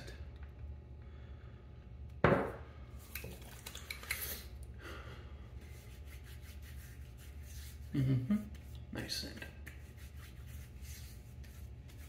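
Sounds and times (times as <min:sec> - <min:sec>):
hands rubbing skin: 0:05.6 - 0:12.0.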